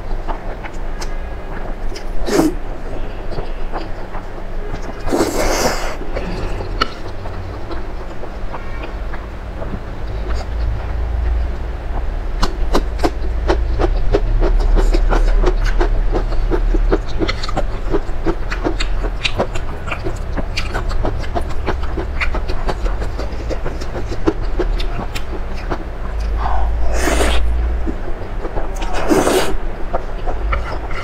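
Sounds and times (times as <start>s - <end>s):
steady low hum: 0.0s - 31.0s
wet chewing and lip-smacking: 12.4s - 31.0s.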